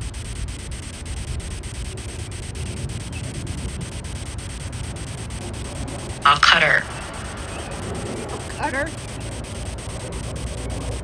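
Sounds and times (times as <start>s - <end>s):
faint regular ticks: 0.0s - 11.0s
static hiss: 0.0s - 11.0s.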